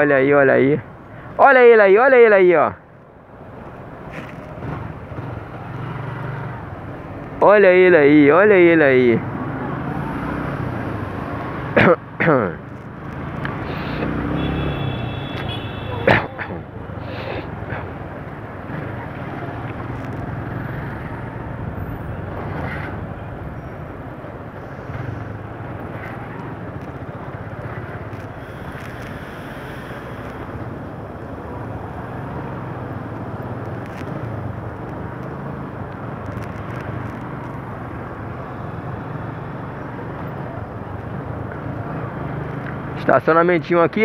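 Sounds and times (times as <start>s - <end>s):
road noise: 0.0s - 44.0s.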